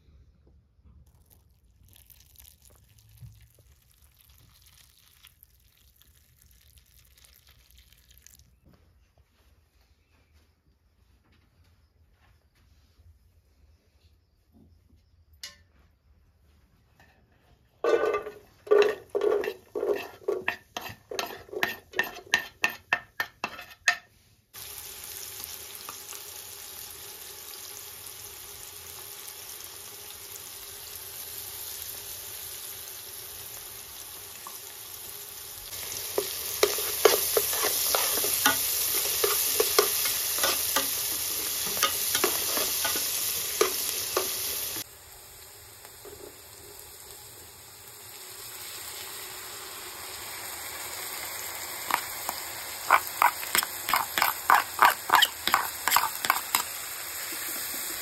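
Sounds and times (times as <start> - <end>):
stirring strokes in pot: 17.3 - 24.2, 35.7 - 44.9, 51.9 - 56.7
onions sizzling in oil: 17.8 - 58.0.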